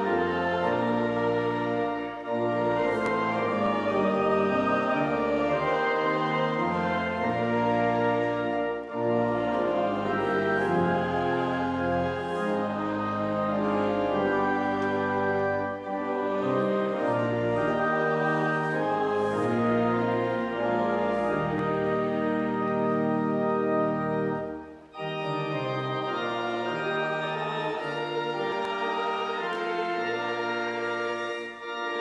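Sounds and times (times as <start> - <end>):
pipe organ playing hymn: 0.0 - 32.0.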